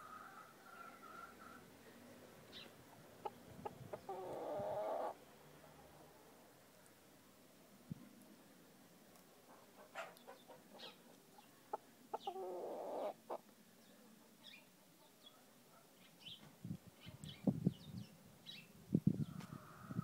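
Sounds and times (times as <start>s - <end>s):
small birds chirping: 0.7s - 5.1s, 10.0s - 19.4s
chicken calling: 3.2s - 5.2s, 12.1s - 13.4s.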